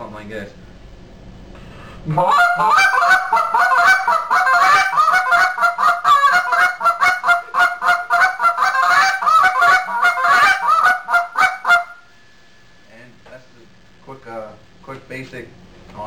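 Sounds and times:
goose call clucks: 0:02.1 - 0:12.0.

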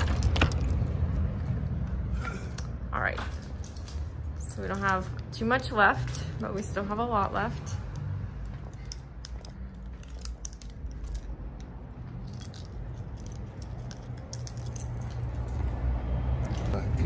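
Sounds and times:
light clicks and rattles: 0:07.9 - 0:15.8.

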